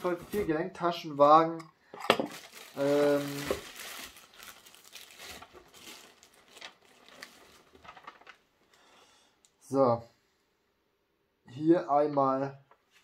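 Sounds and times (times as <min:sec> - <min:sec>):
bubble wrap crinkling: 0:00.0 - 0:00.6, 0:02.2 - 0:08.9
person speaking: 0:00.0 - 0:01.7, 0:02.3 - 0:03.8.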